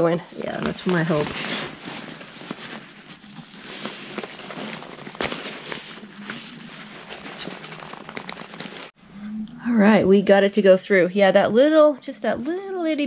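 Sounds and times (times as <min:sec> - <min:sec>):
fabric and straps rustling: 0:00.4 - 0:09.0.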